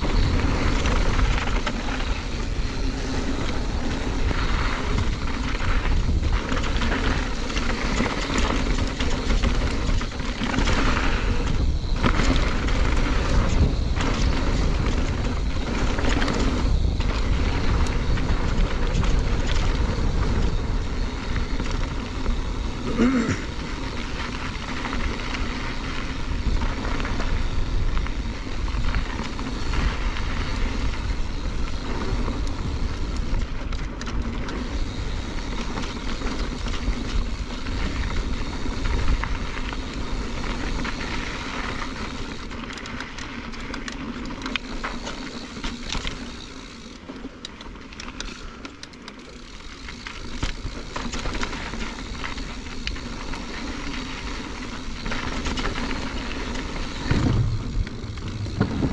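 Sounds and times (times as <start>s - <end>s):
wind rushing on microphone: 0.0s - 33.8s, 54.7s - 58.9s
bike clicks and rattles: 0.0s - 58.9s
tyres crunching on gravel: 0.0s - 58.9s.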